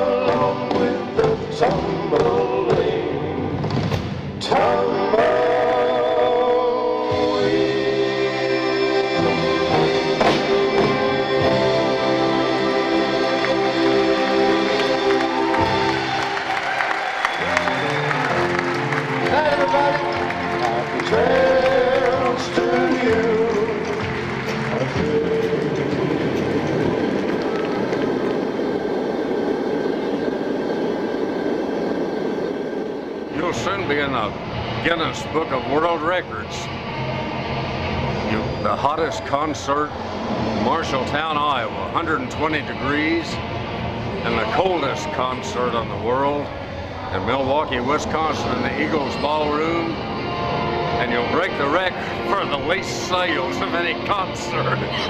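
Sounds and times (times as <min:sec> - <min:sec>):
vocal group singing in harmony: 0:00.0 - 0:16.4, 0:17.4 - 0:27.3
gas heater burner roaring: 0:00.0 - 0:55.0.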